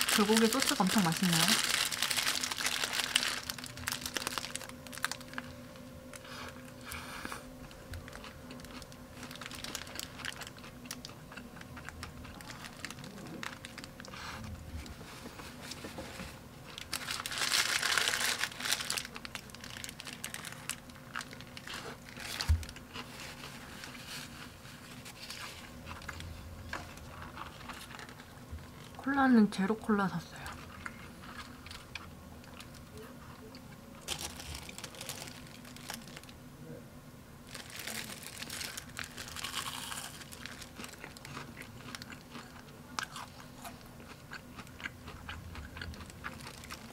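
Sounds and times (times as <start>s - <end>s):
paper wrapper crinkling: 0.0s - 6.8s, 7.6s - 29.0s, 34.0s - 36.4s, 37.4s - 42.4s, 45.9s - 46.9s
faint steady hum: 0.0s - 46.9s.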